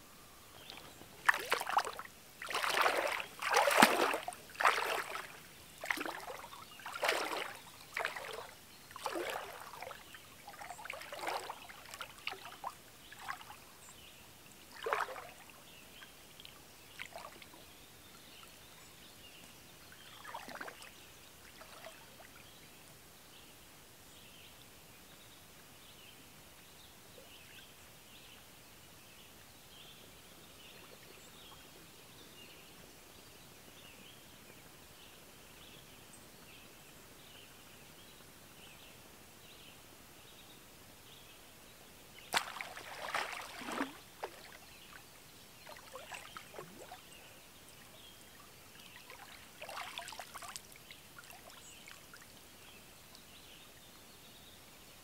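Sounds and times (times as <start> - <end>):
water drips: 0.6 - 13.5, 42.3 - 44.6
water splashing and trickling: 0.6 - 13.8, 14.6 - 15.7, 16.4 - 17.6, 20.0 - 22.5, 42.2 - 52.5.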